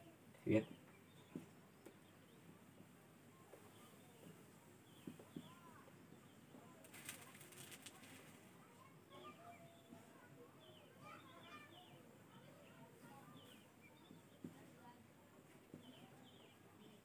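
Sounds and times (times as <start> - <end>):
faint bird chirps: 3.3 - 14.6.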